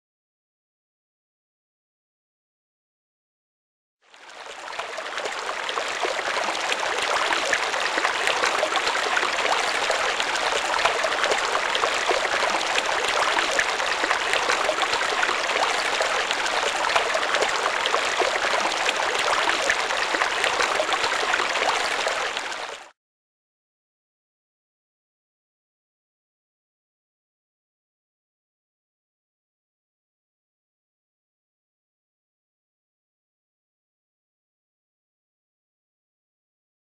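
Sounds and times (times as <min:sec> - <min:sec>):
running water rushing: 0:04.2 - 0:22.9.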